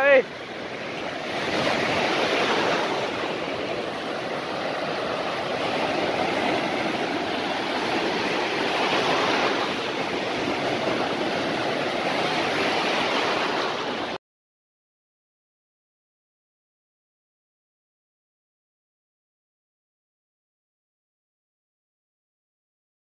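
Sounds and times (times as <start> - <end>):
waves breaking in shallow surf: 0.0 - 14.2.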